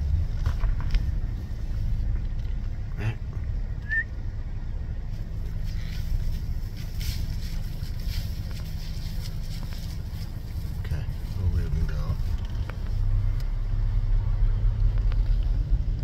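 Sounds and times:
dry grass rustling: 4.9s - 13.8s.

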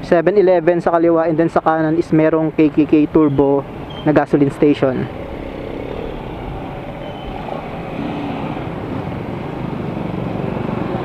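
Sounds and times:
road noise: 0.0s - 11.0s
scooter engine running: 5.1s - 11.0s.

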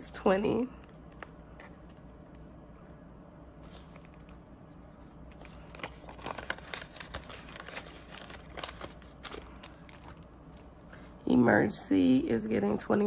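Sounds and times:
plastic pouches crinkling: 3.6s - 10.9s.

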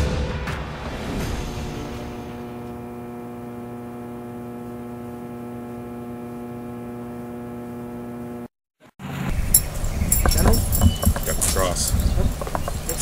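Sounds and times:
steady electrical hum: 2.4s - 8.5s.

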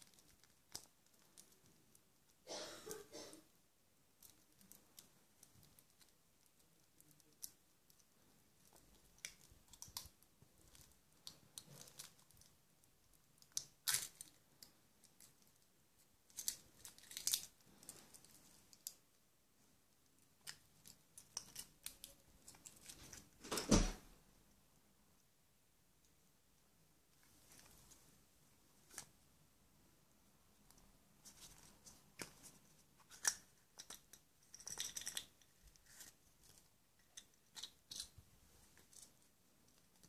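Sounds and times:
foil wrapper crinkling and tearing: 16.3s - 18.9s.

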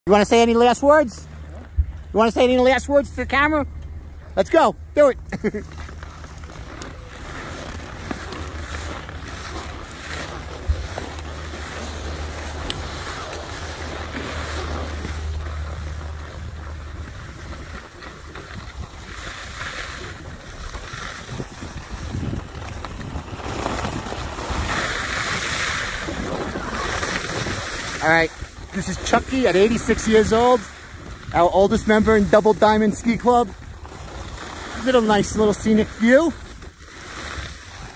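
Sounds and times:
low rumble: 0.2s - 32.6s
swishes of turning skis: 5.5s - 37.9s
wind buffeting microphone: 7.0s - 35.7s
skis hissing on snow: 23.4s - 33.3s, 33.9s - 37.9s.

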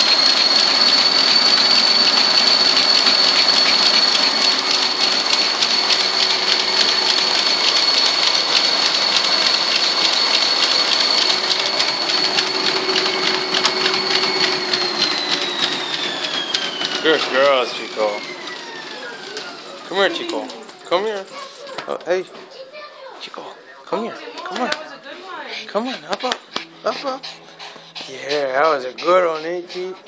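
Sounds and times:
treadmill motor whine: 0.0s - 22.3s, 23.6s - 30.0s
dog's paws pattering on belt: 0.2s - 23.2s, 24.1s - 30.0s.

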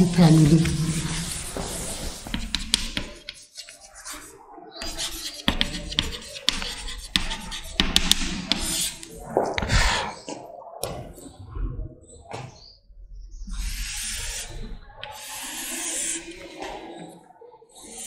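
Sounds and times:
chalk tapping and scratching: 0.1s - 9.8s, 13.6s - 17.1s
chalk scraping on blackboard: 0.3s - 9.1s, 13.5s - 17.1s, 17.7s - 18.0s.

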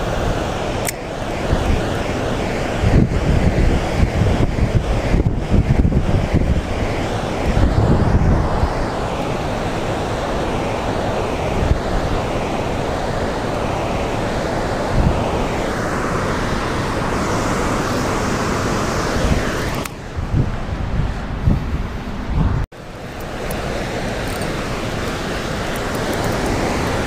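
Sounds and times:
water rushing and churning: 0.0s - 21.4s, 22.1s - 27.0s
wind buffeting microphone: 0.0s - 27.0s.

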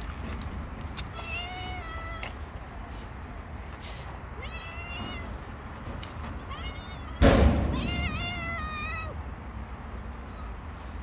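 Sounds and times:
cat meowing: 1.1s - 2.2s, 4.4s - 5.4s, 6.5s - 7.2s, 7.8s - 9.2s.

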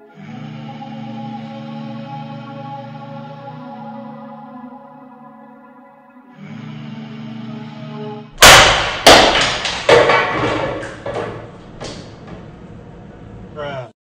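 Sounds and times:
held synth chord: 0.0s - 9.1s.

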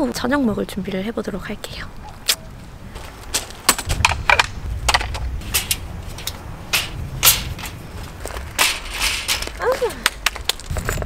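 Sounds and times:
footsteps crunching on gravel: 2.6s - 4.0s, 5.0s - 11.0s
camp furniture clacking: 3.0s - 11.0s.

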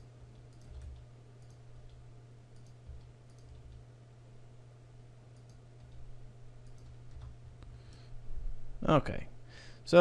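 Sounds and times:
steady low hum: 0.0s - 10.0s
keyboard and mouse clicks: 0.4s - 3.8s, 5.4s - 8.0s.

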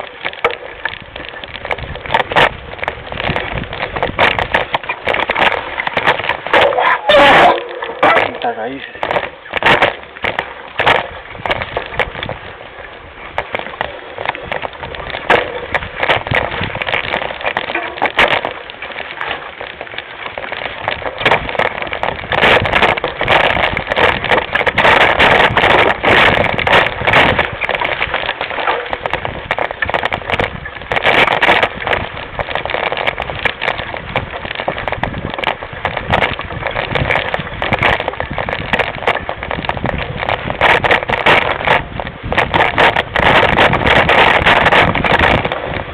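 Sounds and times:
bike rattling over rough trail: 0.0s - 45.9s
tyre noise: 0.0s - 45.9s
wind noise: 0.0s - 45.9s.

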